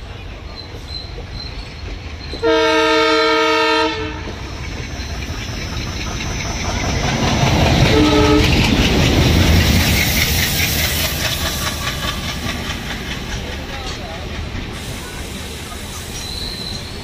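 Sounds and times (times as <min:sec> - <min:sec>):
locomotive rumble and rail clatter: 0:00.0 - 0:17.0
locomotive air horn blasts: 0:02.4 - 0:04.4, 0:07.8 - 0:08.6.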